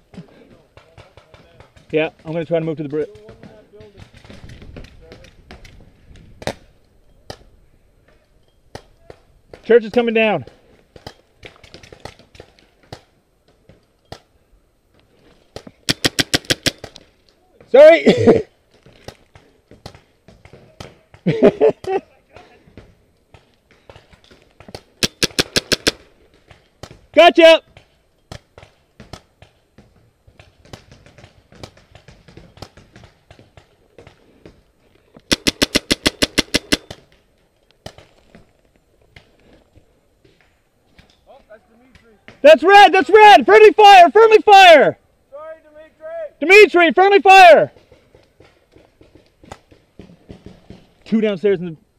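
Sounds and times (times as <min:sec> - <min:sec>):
paintball markers firing: 0:15.6 - 0:17.1, 0:23.3 - 0:27.0, 0:35.2 - 0:37.2.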